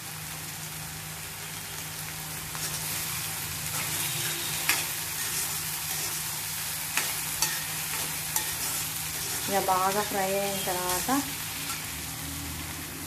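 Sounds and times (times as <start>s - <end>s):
vegetables sizzling in oil: 0.0s - 13.0s
spoon stirring in pan: 3.7s - 11.8s.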